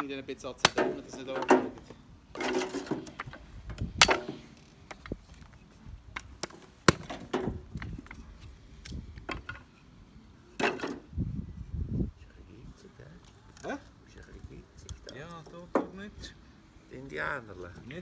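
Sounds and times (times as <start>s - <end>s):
hatchet chopping wood: 0.6s - 1.8s, 6.2s - 7.6s.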